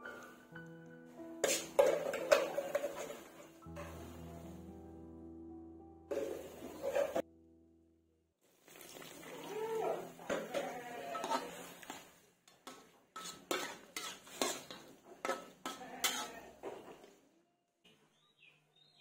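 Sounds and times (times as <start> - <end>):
faint sizzle: 0.0 - 5.0, 6.1 - 7.2, 8.4 - 17.2
metal spatula scraping wok: 1.4 - 4.2, 6.1 - 7.3, 9.9 - 17.1.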